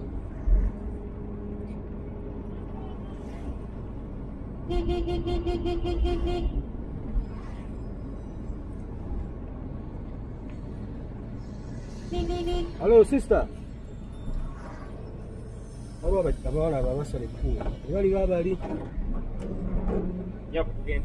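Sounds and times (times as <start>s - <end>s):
car engine rumble: 0.0s - 21.0s
tyres on road: 0.0s - 21.0s
vehicle horn beeping: 4.7s - 6.7s, 12.0s - 12.8s.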